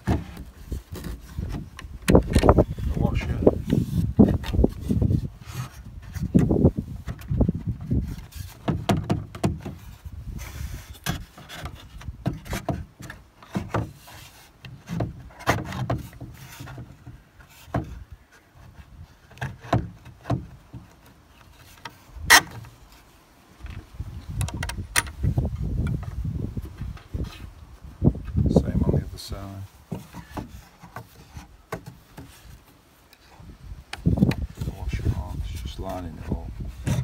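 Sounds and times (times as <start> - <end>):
wooden chair parts knocking: 0.0 - 2.7, 5.6 - 9.9, 19.3 - 22.7, 29.8 - 32.7.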